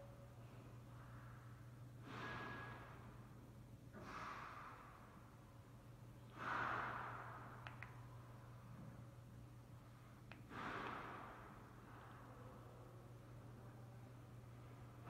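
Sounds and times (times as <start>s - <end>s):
faint low hum: 0.0s - 15.0s
person breathing out: 2.0s - 3.1s, 4.0s - 5.2s, 6.2s - 7.7s, 10.4s - 12.4s.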